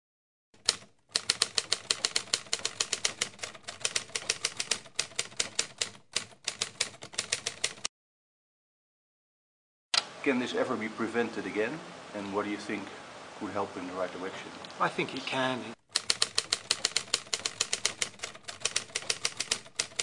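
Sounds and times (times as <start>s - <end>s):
typewriter keys clacking: 0.6s - 7.9s, 15.9s - 20.0s.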